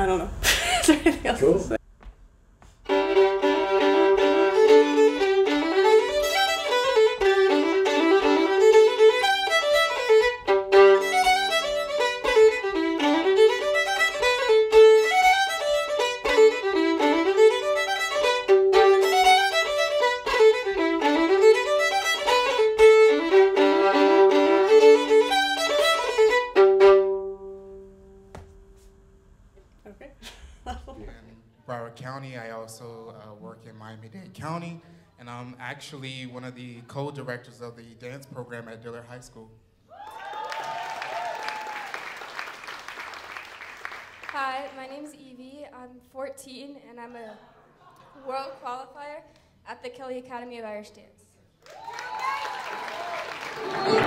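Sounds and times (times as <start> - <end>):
fast fiddle tune: 2.9 - 27.8.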